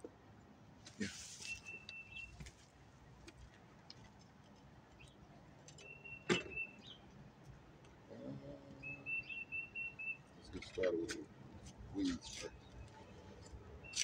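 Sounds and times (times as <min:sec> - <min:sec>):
small clicks and rustles: 0:00.8 - 0:06.0.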